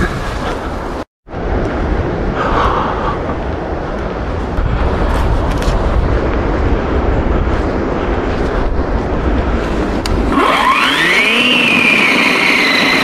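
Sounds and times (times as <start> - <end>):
steady low rumbling: 0.0 - 10.4
electric chainsaw motor whine: 10.3 - 13.0.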